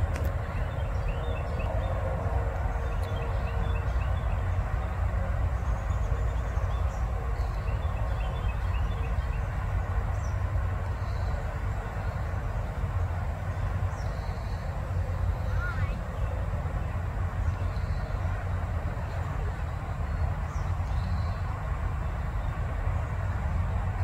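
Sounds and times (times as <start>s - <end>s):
faint bird chirps: 15.4s - 16.2s.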